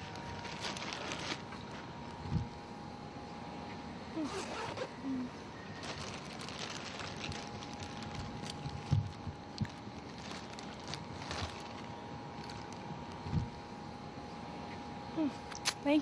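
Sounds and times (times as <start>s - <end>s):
plastic bag crinkling: 0.0s - 2.5s, 5.7s - 13.6s.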